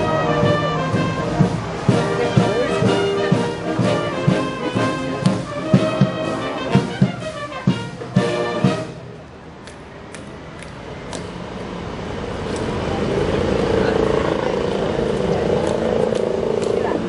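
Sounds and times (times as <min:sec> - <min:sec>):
bass drum beat: 0:00.0 - 0:08.8
brass band playing a march: 0:00.0 - 0:09.2.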